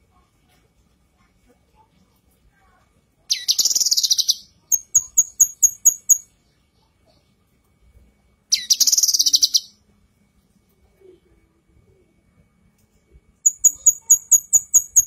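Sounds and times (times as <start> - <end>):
bird buzzy trill: 3.3 - 6.3, 8.5 - 9.8, 13.4 - 15.0.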